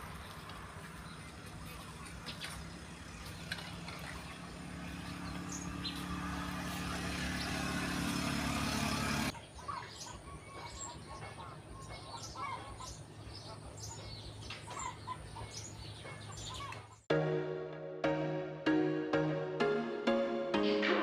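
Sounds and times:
engine hum: 0:00.0 - 0:09.4
birds chirping: 0:00.0 - 0:17.1.

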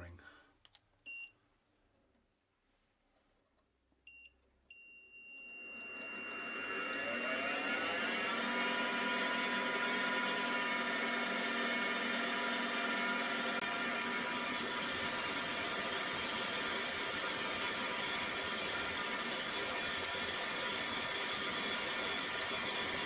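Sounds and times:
spindle motor spinning up: 0:05.6 - 0:23.0.

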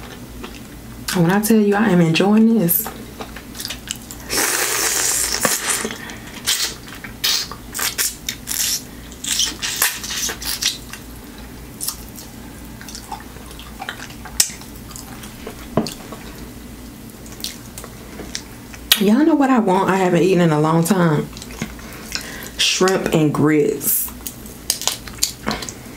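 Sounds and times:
eating clicks and smacks: 0:11.8 - 0:16.0, 0:17.2 - 0:19.0, 0:24.2 - 0:25.8.

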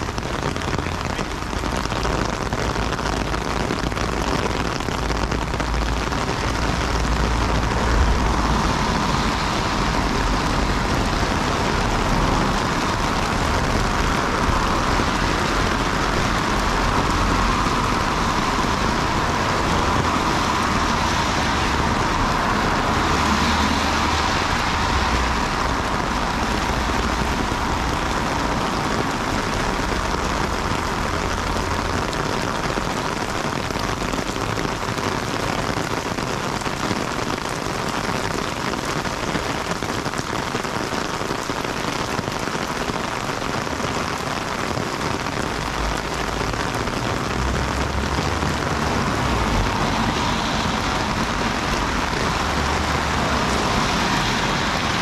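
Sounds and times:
heavy rain pouring: 0:00.0 - 0:55.0
low rumble: 0:05.3 - 0:23.3.

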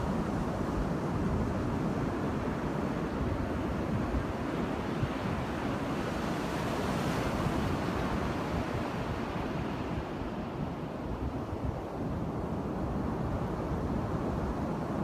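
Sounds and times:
surf washing on beach: 0:00.0 - 0:15.0.

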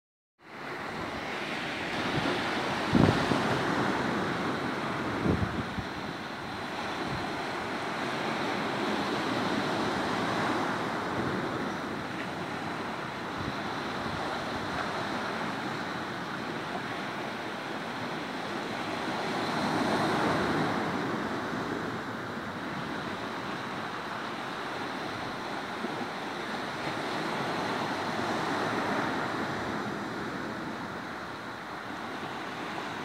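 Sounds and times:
waves on rocky shore: 0:00.4 - 0:33.0
wind buffeting microphone: 0:00.8 - 0:17.0.

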